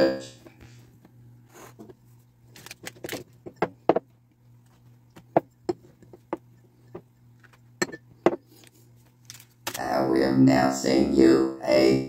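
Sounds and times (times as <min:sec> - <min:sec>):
steady low hum: 0:00.0 - 0:12.0
clicks and knocks on wooden countertop: 0:03.1 - 0:04.1, 0:05.2 - 0:08.5.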